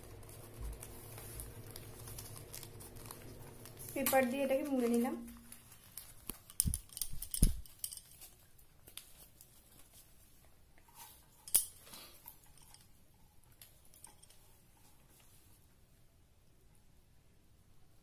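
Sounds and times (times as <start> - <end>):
paper rustling: 0.0 - 12.2.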